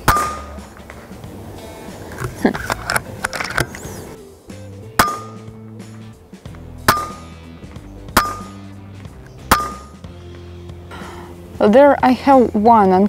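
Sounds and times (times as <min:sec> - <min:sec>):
air rifle shots: 0:00.0 - 0:00.7, 0:06.8 - 0:07.3
background music: 0:00.0 - 0:13.0.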